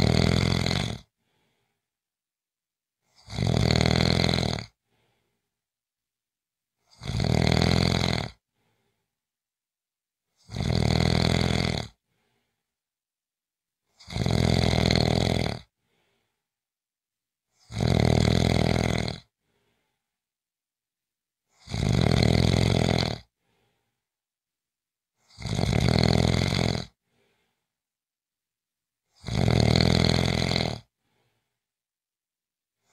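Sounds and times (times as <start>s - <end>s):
person snoring: 0.0s - 1.8s, 3.0s - 5.4s, 6.8s - 9.0s, 10.4s - 12.6s, 13.9s - 16.4s, 17.5s - 19.9s, 21.5s - 23.9s, 25.2s - 27.6s, 29.1s - 31.5s.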